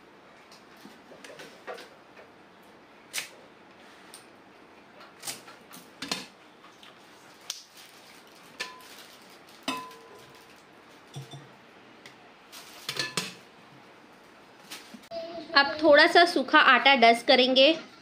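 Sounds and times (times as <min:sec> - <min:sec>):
utensils and dishes clinking: 0:08.6 - 0:11.6, 0:12.8 - 0:13.4.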